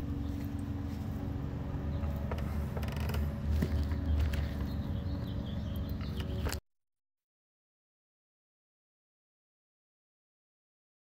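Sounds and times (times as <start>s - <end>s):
truck engine idling: 0.0s - 6.6s
faint creaks and clicks: 2.0s - 4.7s.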